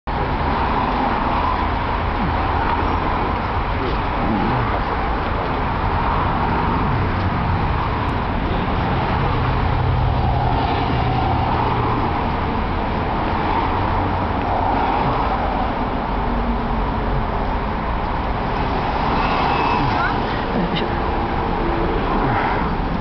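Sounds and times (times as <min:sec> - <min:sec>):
road traffic passing: 0:00.1 - 0:23.0.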